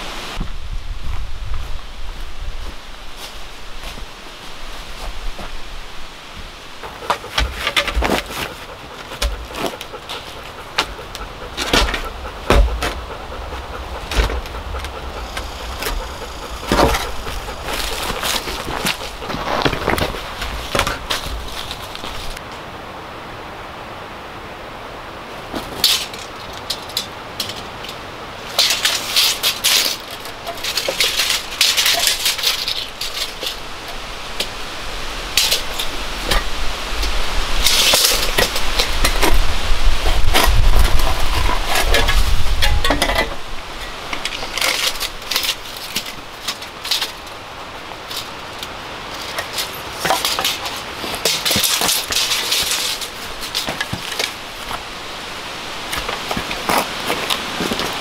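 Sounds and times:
shovel scraping gravel: 6.8 - 22.4, 28.4 - 34.6, 37.6 - 54.8, 55.8 - 58.0.

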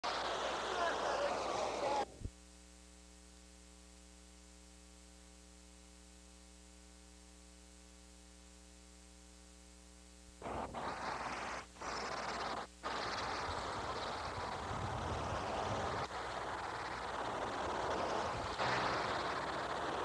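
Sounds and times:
faint electrical mains hum: 0.0 - 10.5
loud rushing noise: 10.4 - 20.0.

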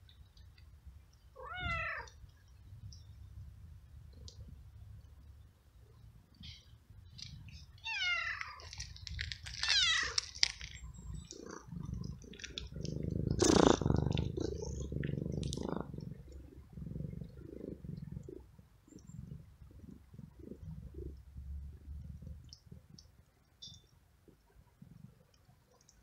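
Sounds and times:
cat meowing: 1.4 - 2.1, 7.8 - 8.6, 9.6 - 10.2
low rumble: 10.9 - 22.9.

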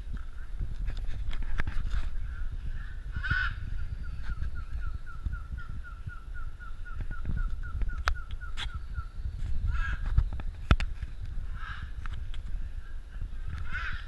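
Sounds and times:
low rumble: 0.0 - 14.0
macaw squawk: 3.2 - 3.7.

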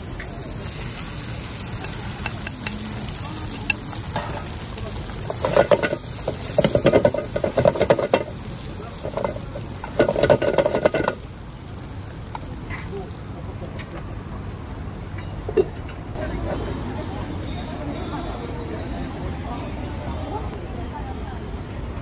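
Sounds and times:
food sizzling: 0.0 - 16.2
metal ladle scraping a wok: 0.2 - 11.2.

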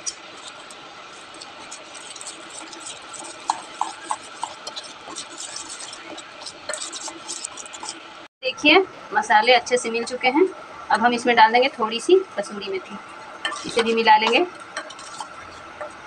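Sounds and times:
metal spoon scraping paste in bowl: 0.0 - 8.1, 13.3 - 16.0.

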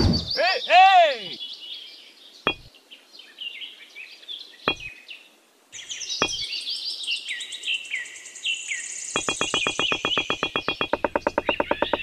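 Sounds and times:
birds chirping: 0.0 - 12.0
model bricks clicking down: 9.2 - 12.0.

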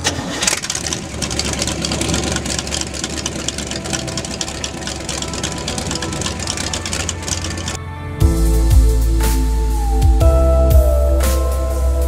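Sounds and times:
boat engine idling: 0.5 - 7.8.

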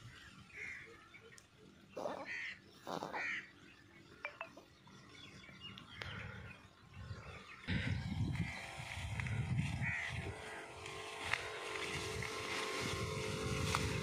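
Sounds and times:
faint bird chirps: 0.0 - 7.6
low rumble: 6.9 - 10.4
crow cawing: 9.8 - 10.6.

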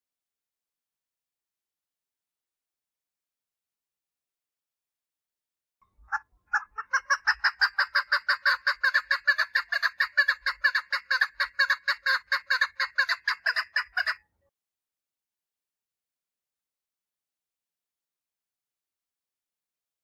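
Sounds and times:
partridge clucking call: 6.0 - 14.2.

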